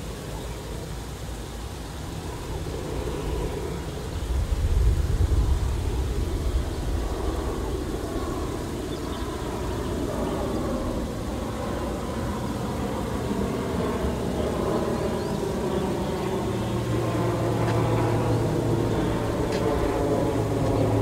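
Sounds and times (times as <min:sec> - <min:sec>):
aircraft engine hum: 0:00.0 - 0:21.0.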